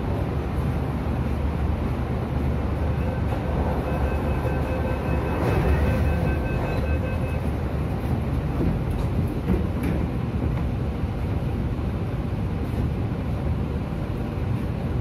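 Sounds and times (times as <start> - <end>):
train interior low rumble: 0.0 - 15.0
short electronic beeps: 2.9 - 7.5.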